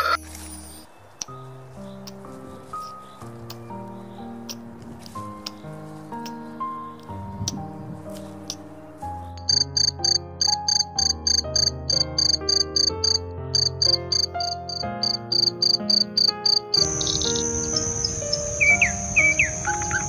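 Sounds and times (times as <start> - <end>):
insect chirping: 8.5 - 20.0
insect high-pitched trill: 9.4 - 20.0.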